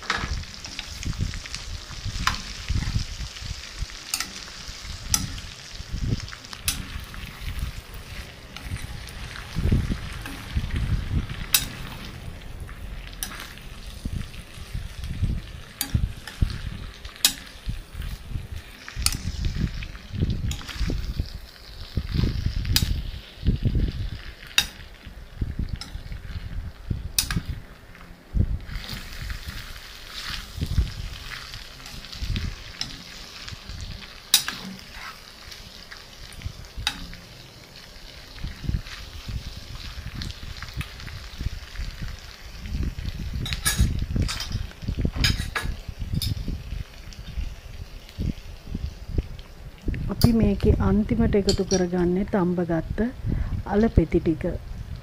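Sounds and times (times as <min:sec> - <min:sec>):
spoon stirring food in pan: 0:00.0 - 0:26.4, 0:27.2 - 0:42.4.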